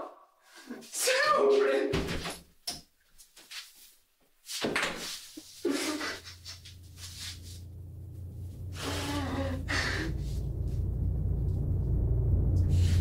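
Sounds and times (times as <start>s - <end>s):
low rumbling drone: 5.7s - 13.0s.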